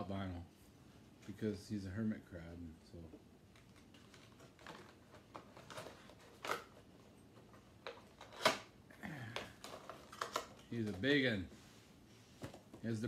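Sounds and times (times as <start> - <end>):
toy figures and boxes handled: 3.1 - 13.0.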